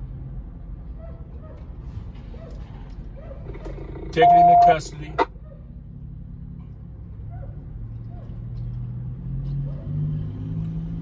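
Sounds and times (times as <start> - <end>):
vehicle engine idling: 0.8 - 8.7.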